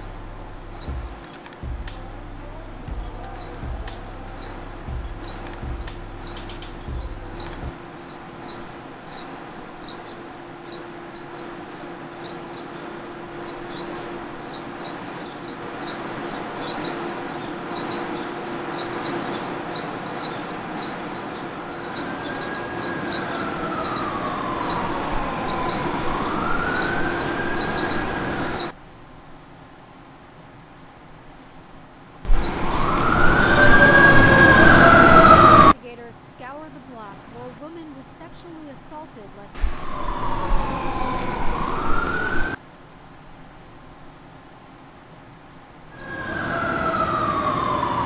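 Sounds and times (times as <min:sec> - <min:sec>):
emergency vehicle siren wailing: 0:00.0 - 0:28.8, 0:32.3 - 0:35.8, 0:39.5 - 0:42.6, 0:45.9 - 0:48.0
small birds chirping: 0:00.0 - 0:28.8, 0:32.3 - 0:35.8, 0:37.0 - 0:42.6
steady hum: 0:00.0 - 0:48.0.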